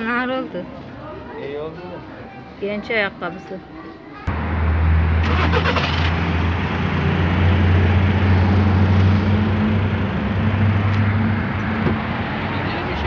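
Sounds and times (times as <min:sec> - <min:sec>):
street traffic noise: 0:00.0 - 0:13.0
vehicle engine running: 0:04.3 - 0:13.0.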